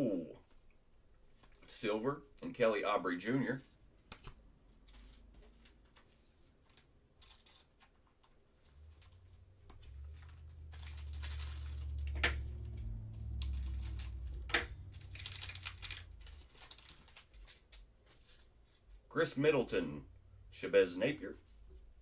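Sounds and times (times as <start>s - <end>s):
low handling rumble: 8.7s - 16.8s
wrapper cracking: 8.8s - 17.8s
foil pack tearing and crinkling: 10.1s - 17.7s.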